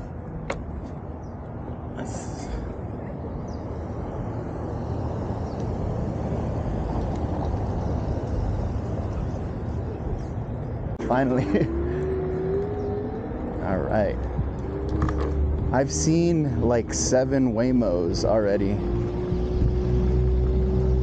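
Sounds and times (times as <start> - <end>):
cars and trucks driving past: 0.0 - 21.0.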